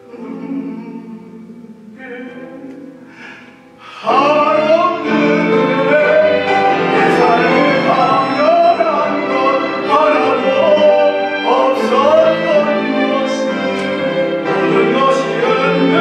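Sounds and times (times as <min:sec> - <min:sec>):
man singing with vibrato: 0:00.0 - 0:16.0
string ensemble playing: 0:00.0 - 0:16.0.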